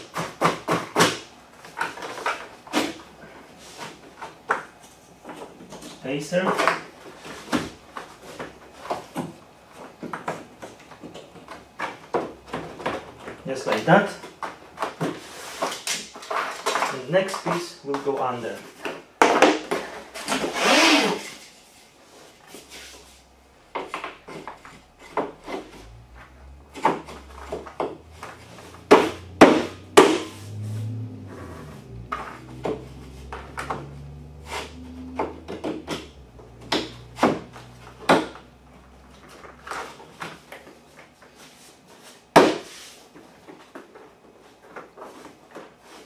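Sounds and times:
laminate planks knocking and clicking: 0.0s - 3.0s, 26.7s - 30.3s, 35.0s - 41.2s
plank scraping slide: 26.8s - 36.2s.

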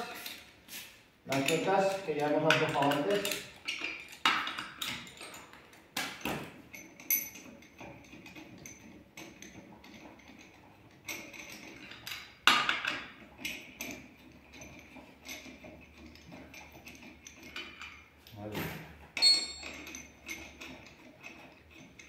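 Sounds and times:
lug nuts clicking and clinking: 1.3s - 18.4s, 19.0s - 22.0s.

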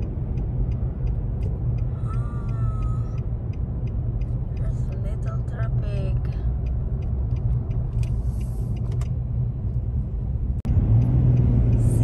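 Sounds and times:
tyre and engine rumble: 0.0s - 12.0s.

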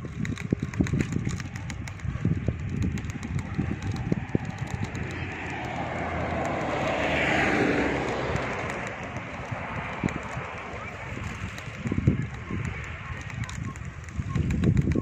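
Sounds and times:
bicycle rolling on pavement: 0.0s - 15.0s
broad rushing noise: 0.0s - 15.0s.

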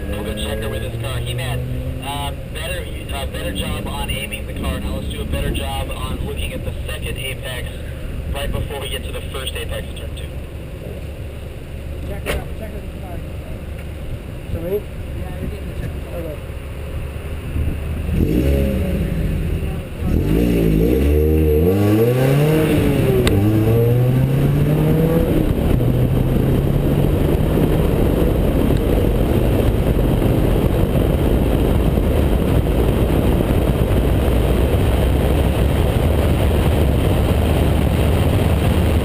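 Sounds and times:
race car engine accelerating: 0.0s - 7.8s, 17.6s - 39.0s
wind and road noise: 0.0s - 39.0s.

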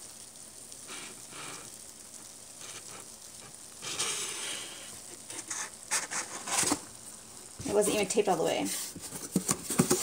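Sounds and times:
steady hiss: 0.0s - 10.0s
cardboard rustling and scraping: 3.8s - 6.9s, 7.6s - 10.0s.

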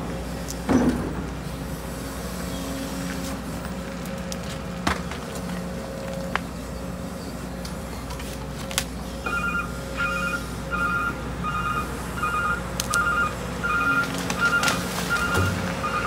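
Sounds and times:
diesel engine running: 0.0s - 16.0s
backup alarm beeping: 9.2s - 16.0s.

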